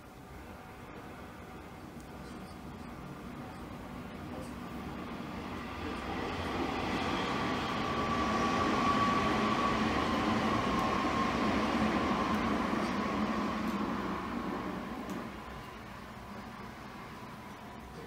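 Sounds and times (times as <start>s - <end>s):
faint steady whine: 0.0s - 18.0s
vehicle rumbling past: 5.0s - 17.3s.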